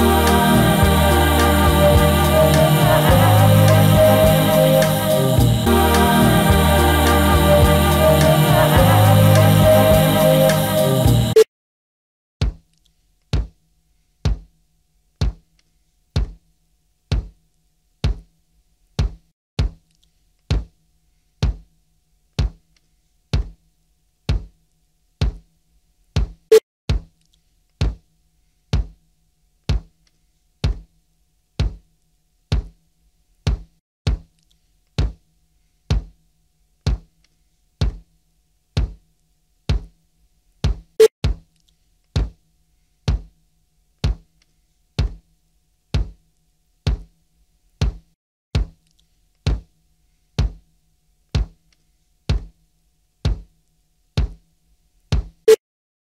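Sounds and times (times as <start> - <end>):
electronic kick drum thumps: 0.0 - 10.2, 11.0 - 11.4, 14.3 - 14.5, 15.2 - 15.4, 16.2 - 16.4, 17.1 - 17.4, 18.0 - 18.3, 19.0 - 19.8, 22.4 - 22.6, 24.3 - 24.5, 25.2 - 25.4, 26.2 - 27.1, 30.6 - 30.9, 31.6 - 31.8, 32.5 - 32.8, 33.5 - 34.3, 36.9 - 37.1, 38.8 - 39.0, 39.7 - 39.9, 40.6 - 41.5, 42.2 - 42.4, 43.1 - 43.3, 44.0 - 44.3, 45.0 - 45.2, 46.0 - 46.2, 46.9 - 47.1, 47.8 - 48.8, 49.5 - 49.7, 50.4 - 50.6, 51.4 - 51.6, 53.3 - 53.5, 54.2 - 54.4, 55.1 - 55.5.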